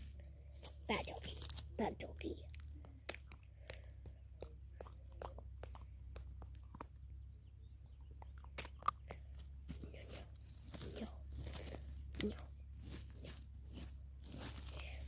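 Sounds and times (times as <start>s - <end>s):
puppy chewing: 2.5s - 7.3s, 7.9s - 12.4s.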